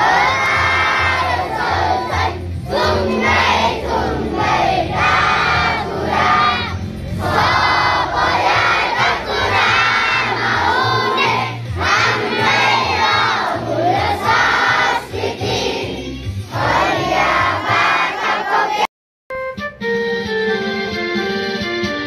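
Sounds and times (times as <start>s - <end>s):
organ-like keyboard notes: 0.0s - 14.9s, 19.3s - 22.0s
children singing in unison: 0.0s - 18.9s.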